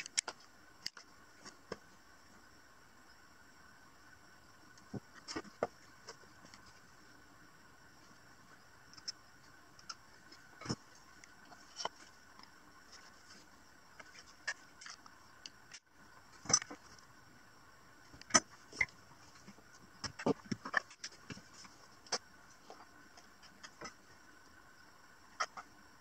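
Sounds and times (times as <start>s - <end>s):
small parts clicking and tapping: 0.0s - 1.8s
faint background hum: 0.0s - 26.0s.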